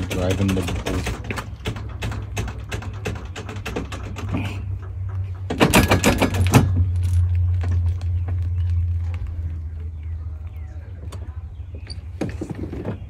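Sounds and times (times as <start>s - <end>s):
rapid mechanical clicking: 0.0s - 6.7s
low hum: 1.4s - 13.0s.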